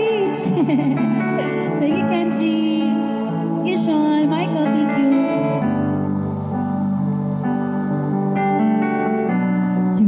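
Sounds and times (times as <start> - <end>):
woman singing into a microphone: 0.0 - 5.2
instrumental backing track with guitar: 0.0 - 10.0.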